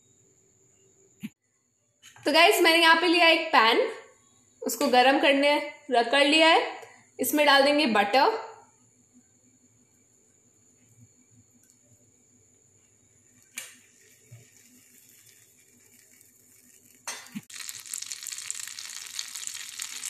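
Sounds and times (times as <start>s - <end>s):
butter sizzling in a pan: 13.4s - 20.0s.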